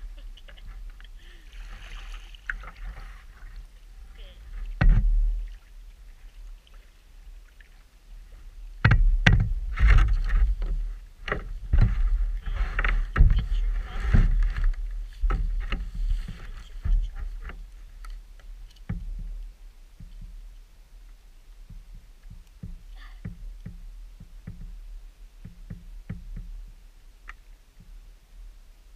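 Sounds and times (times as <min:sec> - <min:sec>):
flask knocking against kayak: 0:08.8 - 0:12.0.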